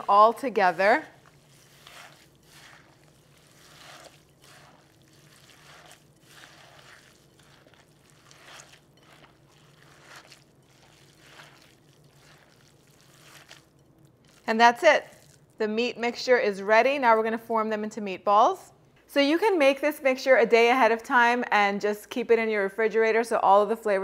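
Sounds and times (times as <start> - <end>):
soft squishing of meat mixture: 0.0 - 15.6.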